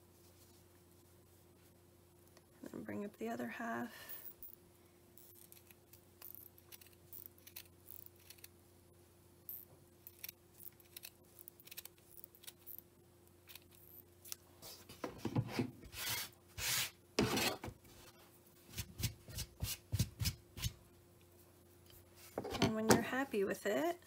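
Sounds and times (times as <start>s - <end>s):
yarn rubbing against table: 14.6s - 18.1s.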